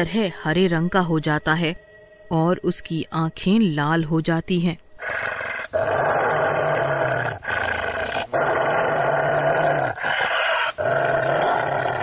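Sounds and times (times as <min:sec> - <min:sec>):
deep raspy monster growl: 0:05.0 - 0:12.0.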